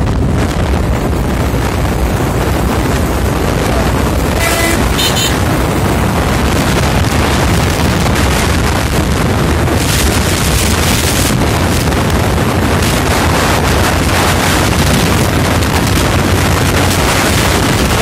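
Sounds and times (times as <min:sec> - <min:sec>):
motorcycle engine and road roar: 0:00.0 - 0:18.0
wind buffeting microphone: 0:00.0 - 0:18.0
vehicle horn toot: 0:04.2 - 0:05.6.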